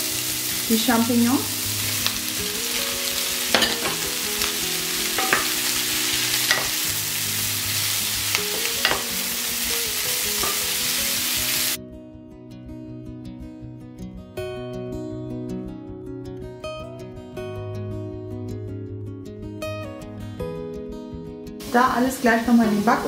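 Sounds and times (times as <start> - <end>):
vegetables sizzling in oil: 0.0 - 11.8, 21.6 - 23.0
acoustic guitar music: 0.0 - 23.0.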